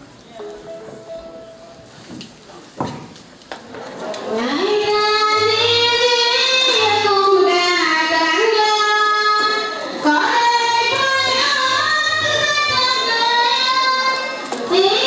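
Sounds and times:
high voice singing held notes: 0.4s - 2.1s.

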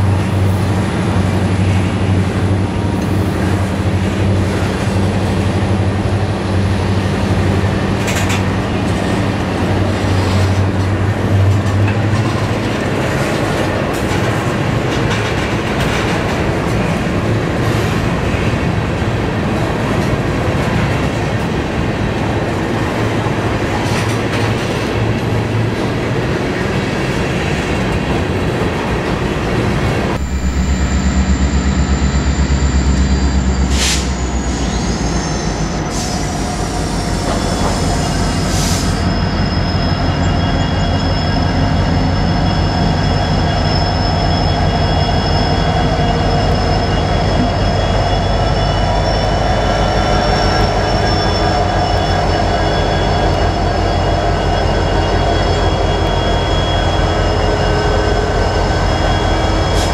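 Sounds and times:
diesel locomotive engine running: 0.0s - 59.9s
freight train rumble: 0.0s - 59.9s
wheel clatter over rail joints: 2.9s - 30.1s
high steady whine: 30.2s - 34.8s.

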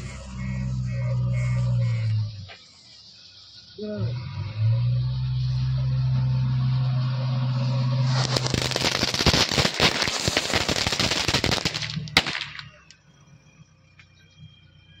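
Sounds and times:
firecrackers crackling: 6.7s - 13.0s
loud firecracker bang: 8.0s - 12.8s.

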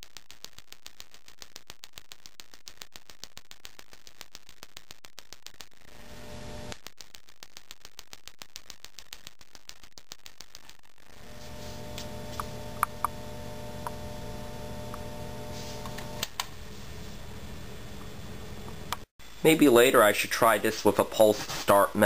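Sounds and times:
lamp ballast humming: 5.8s - 6.8s, 11.1s - 16.6s
igniter sparking snaps: 6.7s - 16.5s.

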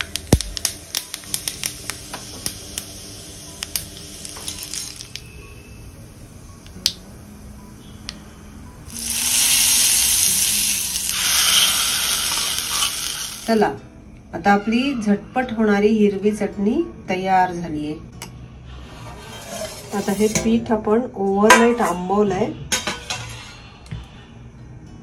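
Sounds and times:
mustard seeds popping in hot oil: 0.0s - 5.4s, 6.6s - 7.0s, 8.9s - 13.7s
hot oil sizzling on chutney: 0.0s - 7.0s, 8.8s - 13.7s.

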